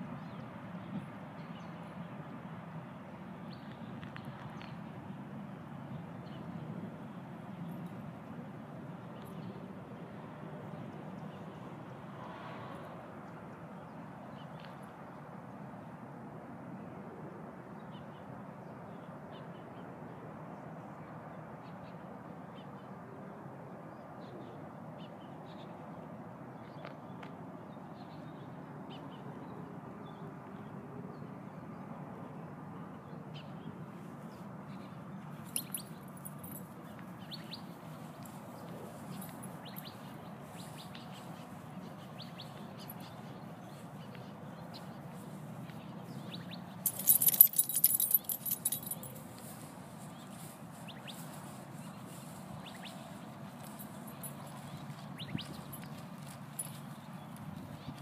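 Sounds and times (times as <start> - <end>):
outdoor background noise: 0.0 - 58.0
light jingle: 35.5 - 36.8, 46.9 - 49.5, 53.6 - 54.6
small birds chirping: 35.5 - 49.2.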